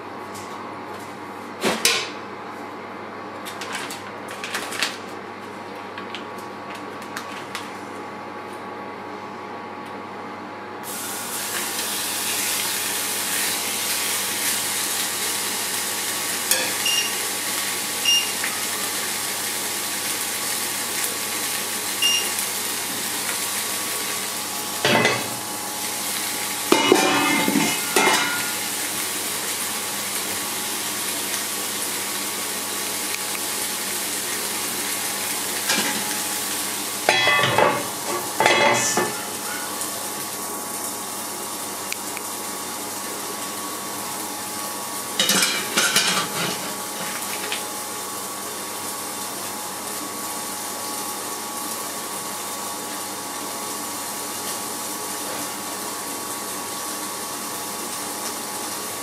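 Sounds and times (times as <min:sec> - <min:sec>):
meat sizzling in grill pan: 0:10.8 - 0:59.0.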